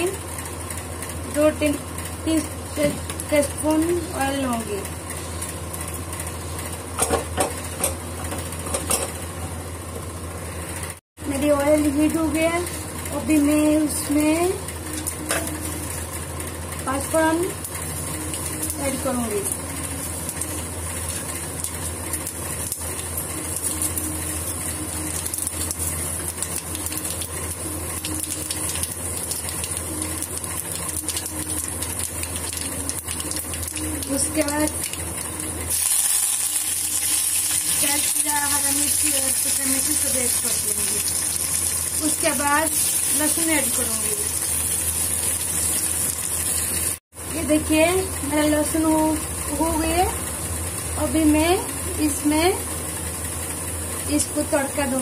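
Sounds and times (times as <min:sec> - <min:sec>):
seeds sizzling in hot oil: 0:17.4 - 0:47.0.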